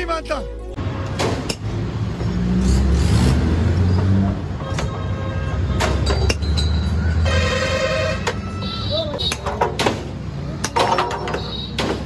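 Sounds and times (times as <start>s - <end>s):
vehicle engine rumbling: 0.0s - 12.0s
sharp clicks and knocks: 9.2s - 12.0s.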